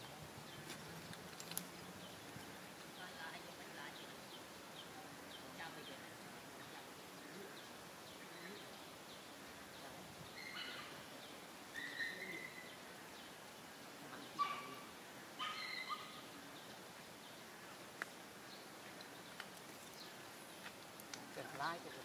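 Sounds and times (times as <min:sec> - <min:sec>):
faint outdoor background: 0:00.0 - 0:22.0
high chirping animal calls: 0:10.3 - 0:12.8, 0:14.1 - 0:16.6.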